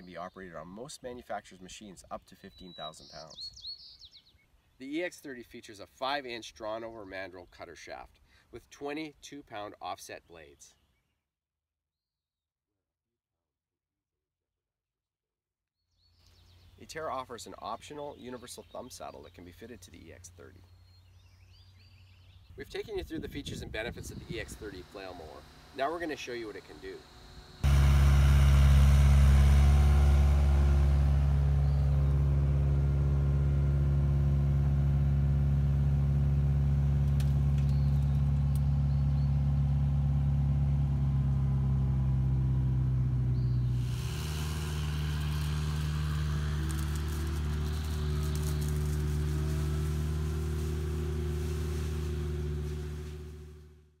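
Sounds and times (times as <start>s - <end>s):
excavator engine and flail mower: 23.1s - 54.0s.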